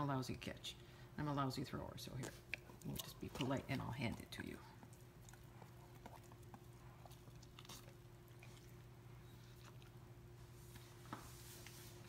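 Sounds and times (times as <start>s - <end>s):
low steady hum: 0.0s - 12.0s
dog chewing mouth clicks: 2.2s - 10.3s.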